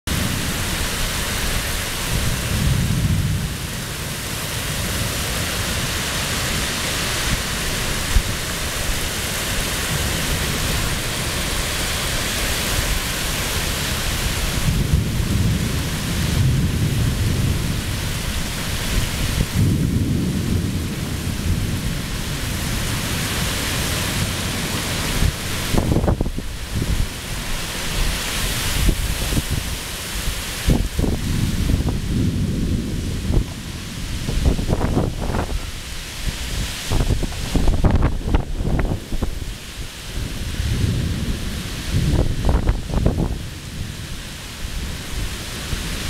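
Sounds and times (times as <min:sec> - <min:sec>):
torrential rain: 0:00.1 - 0:46.0
deep thunder rumbles: 0:01.6 - 0:11.4, 0:13.8 - 0:27.4, 0:30.6 - 0:35.8, 0:36.4 - 0:45.9
sharp thunder crack: 0:19.2 - 0:21.9.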